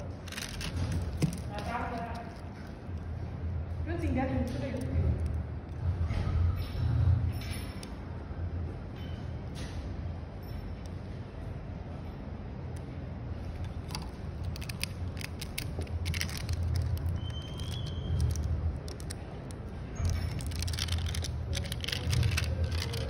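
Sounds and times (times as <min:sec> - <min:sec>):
plastic film crinkling: 0:00.0 - 0:03.1, 0:13.7 - 0:23.0.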